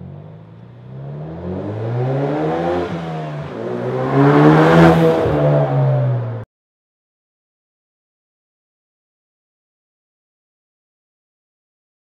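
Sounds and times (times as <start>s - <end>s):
car accelerating past: 0.3s - 6.4s.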